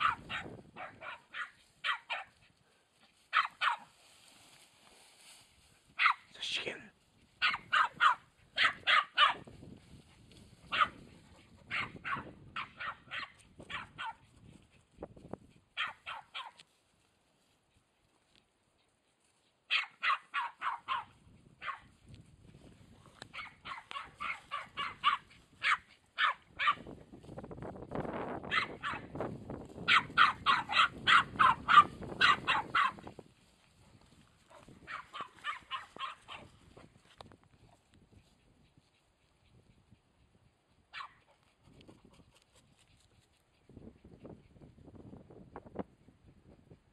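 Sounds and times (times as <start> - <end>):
dog barking sharp yaps: 0.0 - 2.3, 3.3 - 3.9, 6.0 - 6.3, 7.4 - 9.4, 10.7 - 11.0, 11.7 - 14.2, 15.8 - 16.6, 19.7 - 21.9, 23.3 - 26.9, 28.5 - 29.1, 29.9 - 33.0, 34.9 - 36.5, 40.9 - 41.2.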